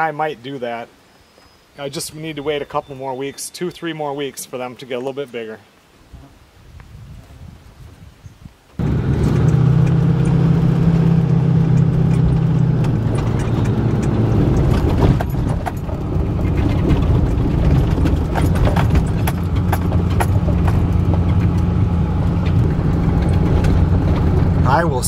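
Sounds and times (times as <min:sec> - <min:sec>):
clicks and knocks on rough track: 0:08.8 - 0:24.7
truck engine and road drone: 0:08.8 - 0:25.0.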